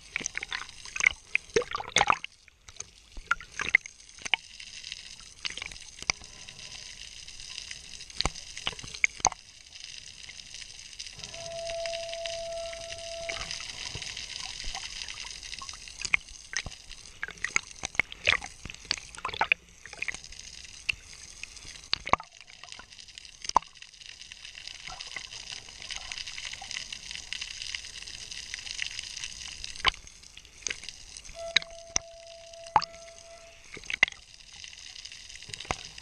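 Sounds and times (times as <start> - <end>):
underwater clicks and pops: 30.6 - 34.2.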